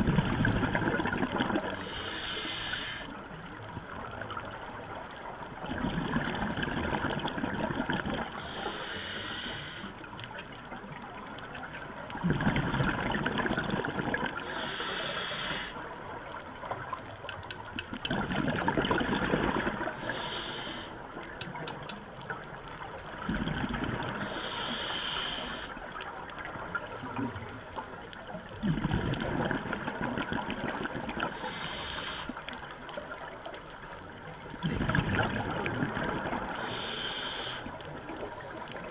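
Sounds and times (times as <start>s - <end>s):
gurgling exhaled bubbles: 0.0s - 1.9s, 5.6s - 8.6s, 12.0s - 14.6s, 17.8s - 20.1s, 23.1s - 24.4s, 28.5s - 31.4s, 34.4s - 36.8s
hissing inhale through regulator: 1.7s - 3.3s, 8.3s - 10.1s, 14.4s - 15.9s, 19.8s - 21.1s, 24.1s - 28.2s, 31.2s - 34.0s, 36.5s - 38.2s.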